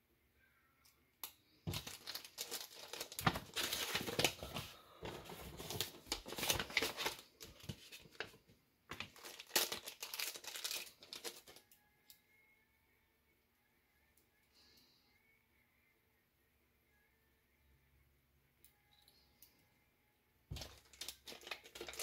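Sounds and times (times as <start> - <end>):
paper envelope being handled: 1.7 - 11.6, 20.5 - 22.0
plastic bag crinkling: 1.7 - 11.6, 20.5 - 22.0.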